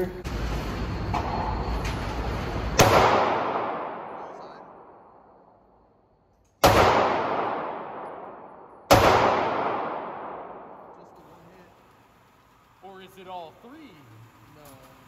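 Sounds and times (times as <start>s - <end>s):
pistol shots echoing indoors: 2.6s - 11.2s.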